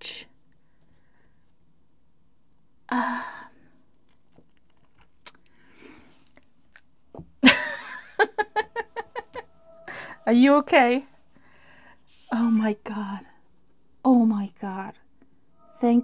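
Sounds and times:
woman sobbing: 0:07.4 - 0:10.3.

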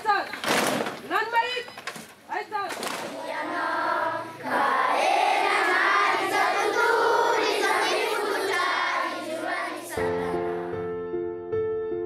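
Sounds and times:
children singing in unison: 0:03.0 - 0:10.7.

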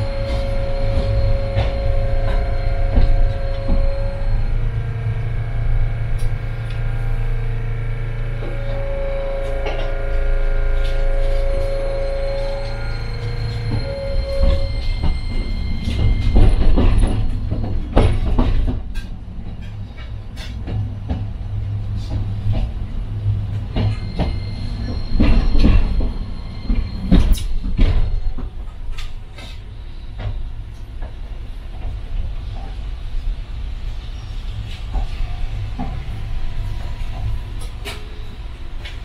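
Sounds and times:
faint high whine: 0:00.0 - 0:17.7
tram wheels rumbling: 0:00.0 - 0:39.0
wheels clacking on rails: 0:00.0 - 0:39.0.

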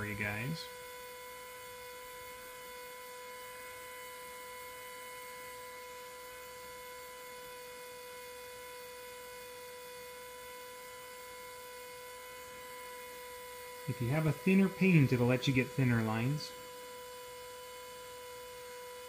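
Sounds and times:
electric motor humming: 0:00.0 - 0:19.0.

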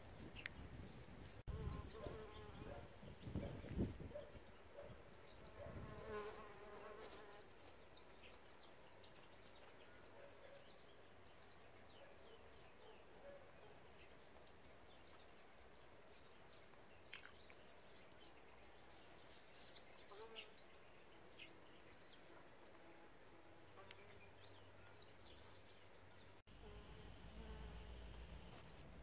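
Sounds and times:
small birds chirping: 0:00.0 - 0:29.0
bee buzzing: 0:26.5 - 0:28.8.

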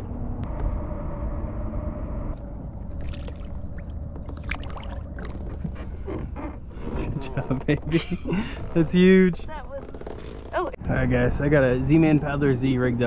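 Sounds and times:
steady low rumble: 0:00.0 - 0:09.3
water splashing and dripping: 0:02.8 - 0:05.8.

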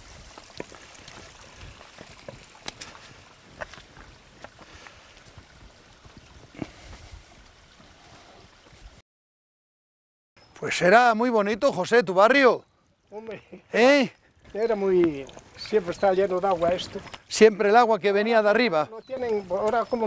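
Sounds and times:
footsteps on loose stones: 0:00.0 - 0:07.8, 0:14.4 - 0:17.6, 0:19.0 - 0:20.0.

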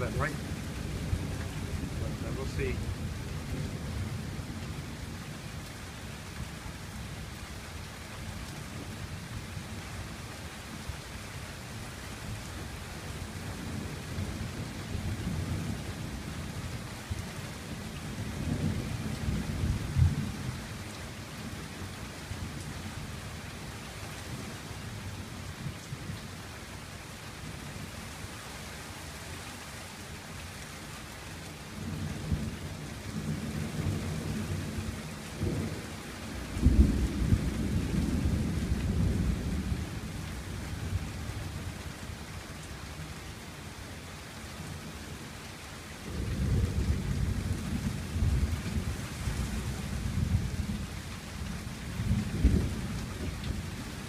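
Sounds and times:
rain hitting a gazebo roof: 0:00.0 - 0:54.0
thunder rumbling: 0:51.9 - 0:53.7.

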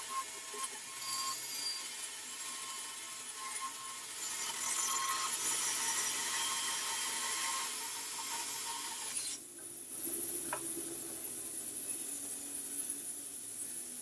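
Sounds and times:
bandsaw blade cutting wood: 0:00.0 - 0:09.4
bandsaw running freely: 0:00.0 - 0:09.4.

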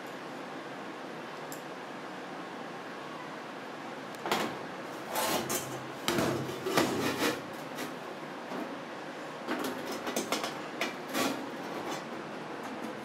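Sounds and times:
metal scraping on metal: 0:05.0 - 0:08.0.

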